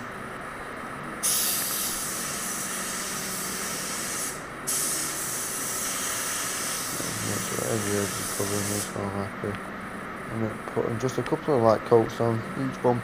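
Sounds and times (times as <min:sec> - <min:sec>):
spray gun hissing: 0:01.2 - 0:09.0.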